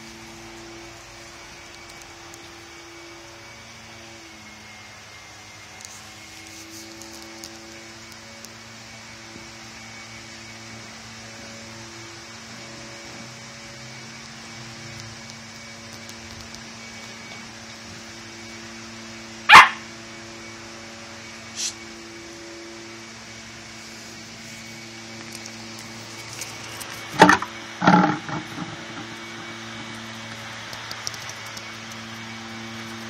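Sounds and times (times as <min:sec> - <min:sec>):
dogs barking: 0:19.5 - 0:19.9
small dog yaps: 0:19.5 - 0:19.9.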